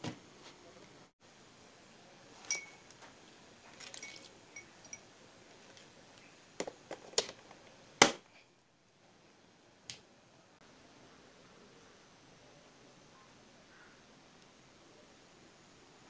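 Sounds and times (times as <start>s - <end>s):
metal clinking against glass: 2.4s - 3.0s, 3.7s - 5.1s.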